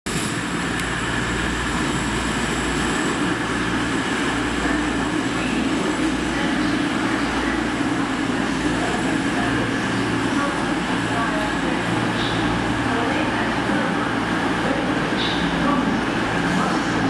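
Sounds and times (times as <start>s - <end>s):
diesel train rumble: 0.1s - 17.0s.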